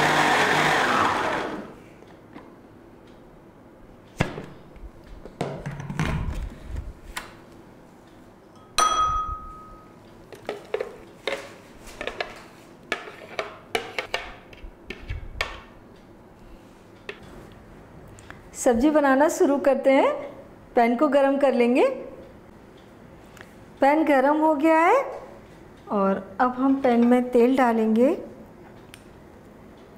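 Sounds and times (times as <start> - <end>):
loud ringing clink: 8.6 - 9.9.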